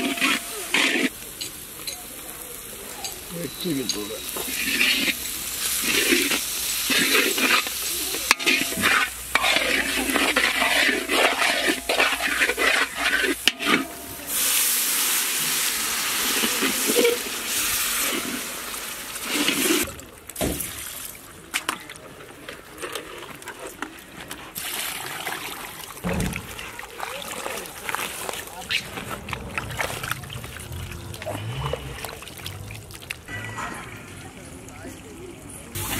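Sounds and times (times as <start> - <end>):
metal ladle scraping pan: 0.0 - 1.1, 3.5 - 15.6, 16.2 - 18.4
spices frying in oil: 0.0 - 19.9
water splashing in pot: 3.9 - 21.2
loud steam hiss: 13.4 - 19.8.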